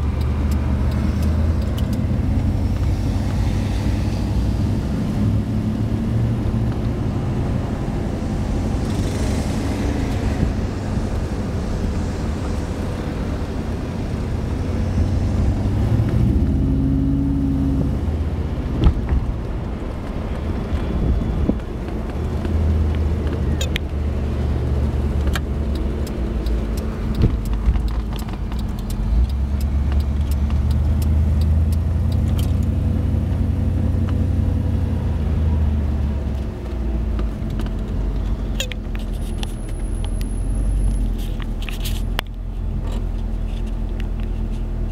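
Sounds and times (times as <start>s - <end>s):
car engine drone: 0.0s - 44.9s
road noise: 0.0s - 44.9s
light clicks and rattles: 24.6s - 32.7s.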